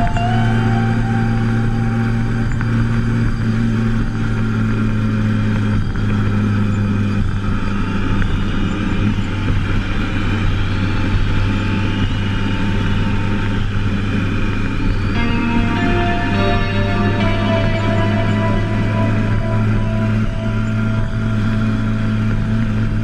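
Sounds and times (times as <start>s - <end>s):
road noise: 0.0s - 23.0s
vehicle engine cruising: 0.0s - 23.0s
wind noise: 0.0s - 23.0s.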